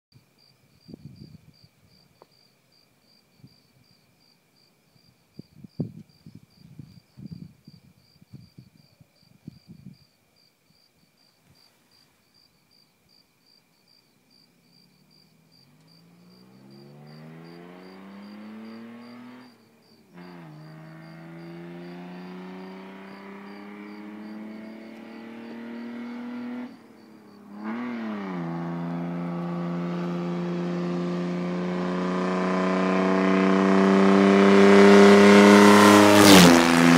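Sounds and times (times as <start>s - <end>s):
crickets chirping: 0.2s - 36.6s
car engine accelerating hard: 15.4s - 19.6s, 20.2s - 36.9s.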